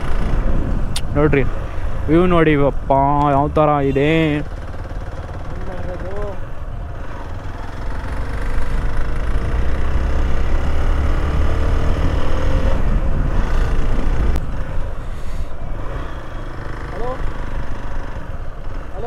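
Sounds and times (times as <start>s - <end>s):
motorcycle engine running: 0.0s - 1.6s, 3.0s - 14.9s, 15.6s - 19.0s
wind rumble on microphone: 0.0s - 3.8s, 11.3s - 16.0s.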